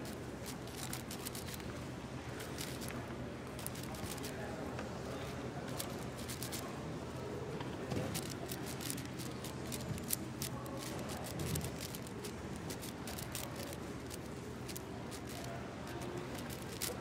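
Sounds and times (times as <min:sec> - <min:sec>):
low background hum: 0:00.0 - 0:17.0
plastic puzzle cube clicking: 0:00.4 - 0:01.6, 0:02.6 - 0:02.9, 0:03.6 - 0:04.3, 0:05.8 - 0:06.6, 0:08.1 - 0:17.0.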